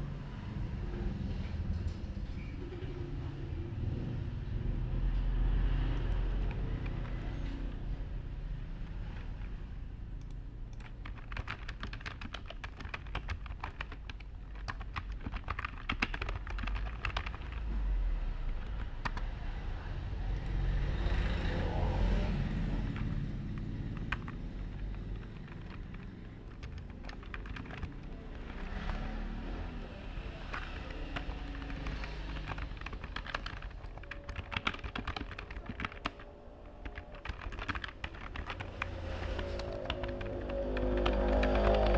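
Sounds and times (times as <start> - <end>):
low background rumble: 0.0 - 41.9
keyboard key clicks: 30.5 - 41.9.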